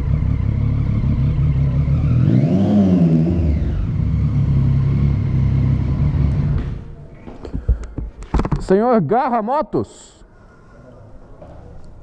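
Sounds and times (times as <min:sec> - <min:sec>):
motorcycle engine running: 0:00.0 - 0:06.9.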